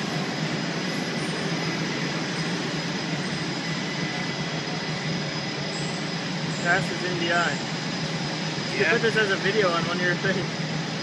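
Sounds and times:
faint high whine: 0:00.0 - 0:11.0
loud rushing machinery: 0:00.0 - 0:11.0.

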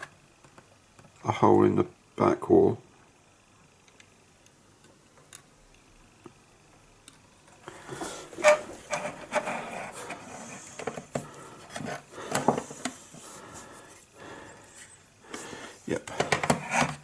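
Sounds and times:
knocks and rubbing: 0:07.9 - 0:13.2, 0:16.1 - 0:17.0.

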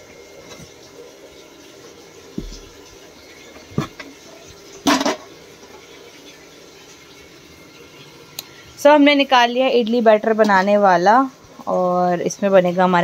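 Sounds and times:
dull knock: 0:02.4 - 0:02.8.

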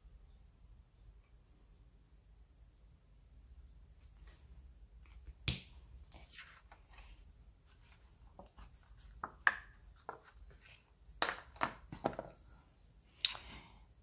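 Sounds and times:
paper rustling: 0:06.1 - 0:10.9.

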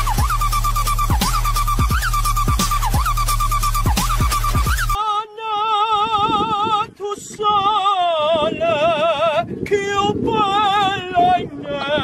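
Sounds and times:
electronic dance music with heavy bass: 0:00.0 - 0:05.0
man singing operatically: 0:05.0 - 0:12.0.

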